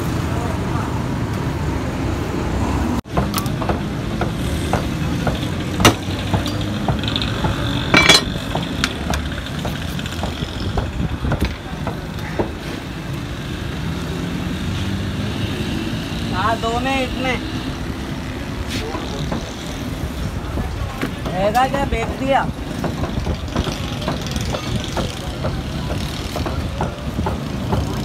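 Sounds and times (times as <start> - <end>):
street traffic rumble: 0.0 - 28.0
scattered knocks and clicks: 3.1 - 12.6, 22.6 - 28.0.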